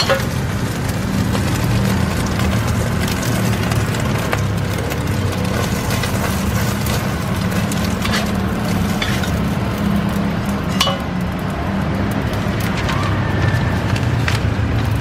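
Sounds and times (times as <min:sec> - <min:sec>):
metal utensils clinking: 0:00.0 - 0:00.4, 0:05.5 - 0:09.6, 0:10.6 - 0:11.2.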